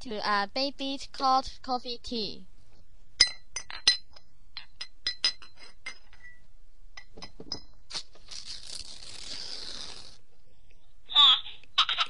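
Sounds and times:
glass clinking: 0:03.2 - 0:07.8.

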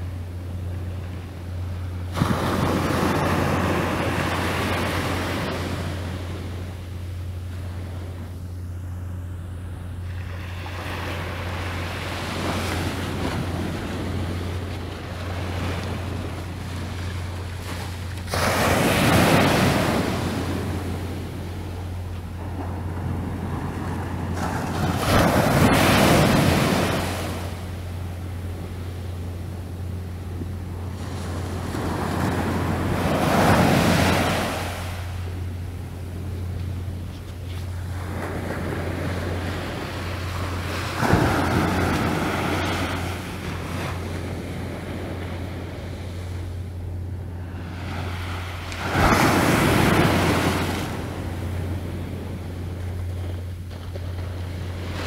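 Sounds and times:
sea waves washing on shore: 0:00.0 - 0:55.0
steady low hum: 0:00.0 - 0:55.0.

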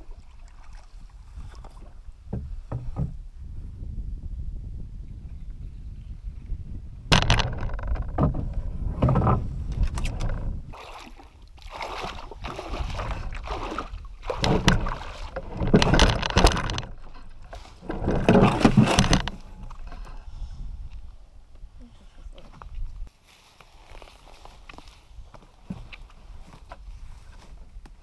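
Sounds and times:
canoe hull scraping over rocks: 0:07.1 - 0:10.8, 0:12.0 - 0:19.9
person clambering out of canoe: 0:07.1 - 0:20.2.

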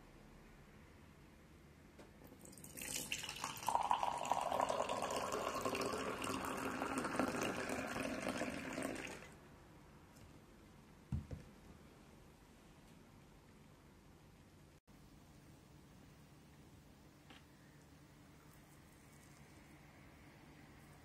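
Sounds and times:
tea pouring into glass: 0:02.4 - 0:09.4.

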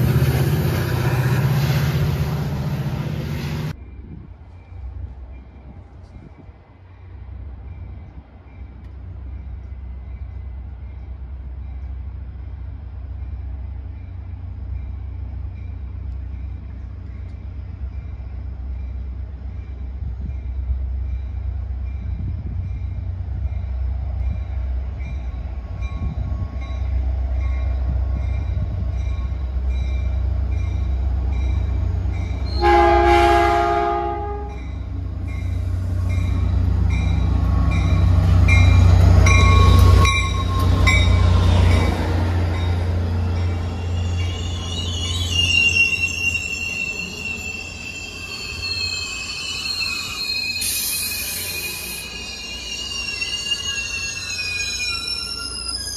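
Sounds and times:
diesel locomotive engine rumble: 0:00.0 - 0:55.9
locomotive horn chord: 0:32.5 - 0:34.6.

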